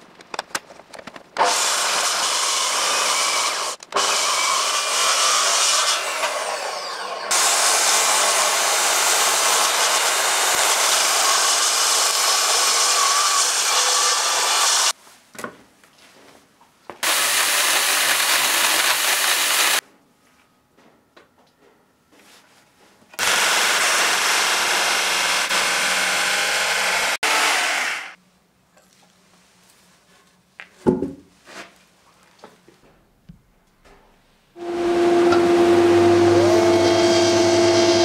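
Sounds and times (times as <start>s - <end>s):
electric chain saw running: 1.4s - 14.9s, 17.0s - 19.8s, 23.2s - 28.2s, 34.6s - 38.0s
circular saw cutting wood: 1.4s - 15.0s, 17.0s - 19.8s, 23.2s - 28.2s, 34.6s - 38.0s.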